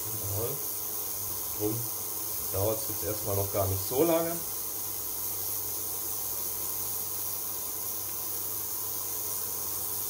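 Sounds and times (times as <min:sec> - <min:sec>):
low electrical hum: 0:00.0 - 0:10.0
ultrasonic cleaner hissing: 0:00.0 - 0:10.0.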